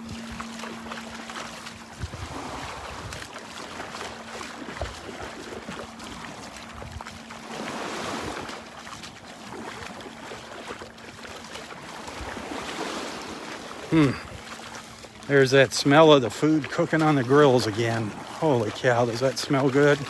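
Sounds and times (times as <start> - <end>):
waves lapping on sandy shore: 0.0 - 20.0
wind on microphone: 1.9 - 3.3, 6.7 - 8.5.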